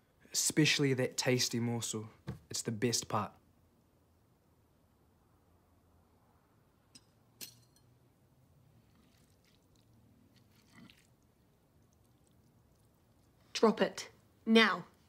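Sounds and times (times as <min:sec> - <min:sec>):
cutlery clicking on plate: 0:07.0 - 0:07.9
small eating noises: 0:08.5 - 0:13.6.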